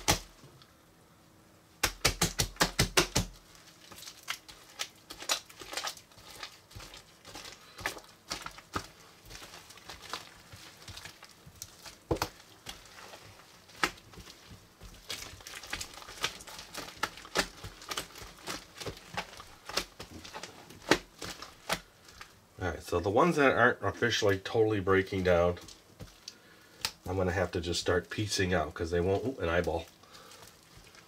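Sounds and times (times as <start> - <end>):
hands squeezing sticky slime: 1.8 - 22.4, 25.6 - 27.2, 29.2 - 31.0
sticky clicks and crackly pops: 13.7 - 22.3, 25.6 - 27.1.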